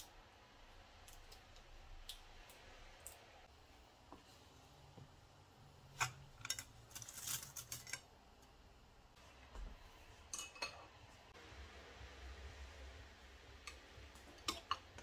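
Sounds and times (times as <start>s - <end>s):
dried noodles clattering into pan: 6.4s - 8.1s.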